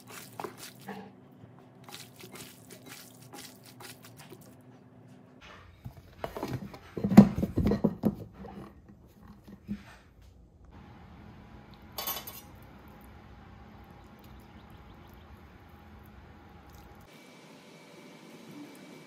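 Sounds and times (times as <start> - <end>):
wet squishing of chicken: 0.0 - 1.0, 1.8 - 4.6, 13.8 - 17.1.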